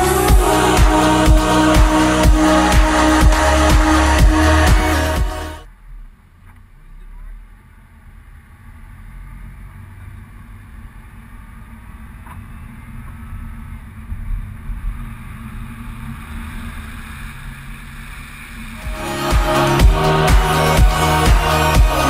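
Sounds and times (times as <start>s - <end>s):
music with heavy beat: 0.0s - 5.6s, 18.8s - 22.0s
car engine and road rumble: 5.7s - 18.8s.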